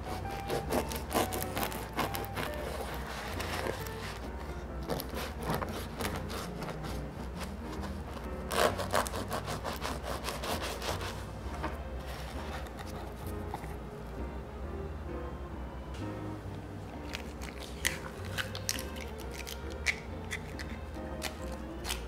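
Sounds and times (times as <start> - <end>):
knife sawing through bread: 0.0 - 4.2, 4.8 - 11.3.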